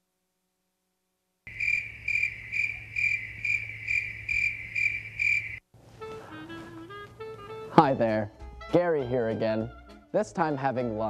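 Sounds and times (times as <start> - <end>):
cricket chirping: 1.5 - 5.6.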